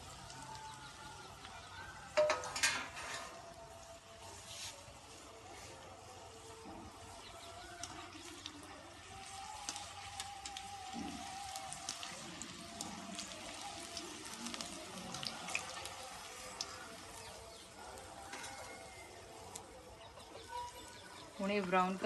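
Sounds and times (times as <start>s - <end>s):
deep-frying sizzle with pops: 0.0s - 22.0s.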